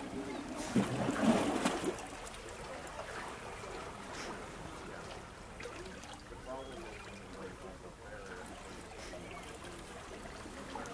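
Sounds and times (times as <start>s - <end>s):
sea waves splashing on rocks: 0.0s - 4.6s.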